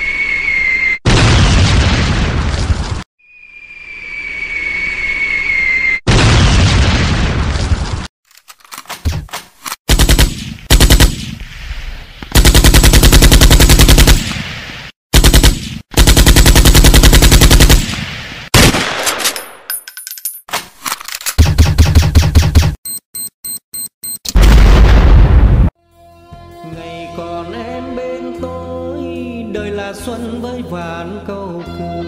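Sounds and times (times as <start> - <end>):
falling whistle: 0.0 - 1.0, 3.2 - 6.0
loud blast: 1.0 - 2.6, 6.1 - 7.5
automatic gunfire bursts: 9.9 - 11.3, 12.3 - 14.3, 15.2 - 17.9.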